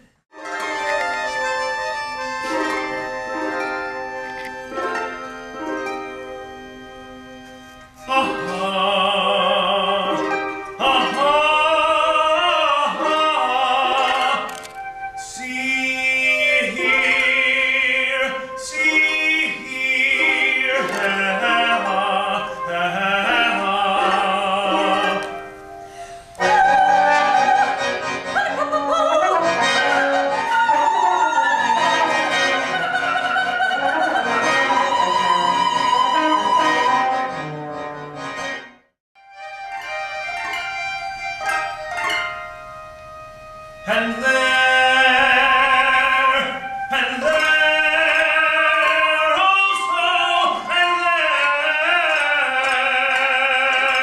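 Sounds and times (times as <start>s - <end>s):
instrumental ensemble with strings: 0.3s - 54.0s
opera singer with vibrato: 8.1s - 37.3s, 43.8s - 54.0s.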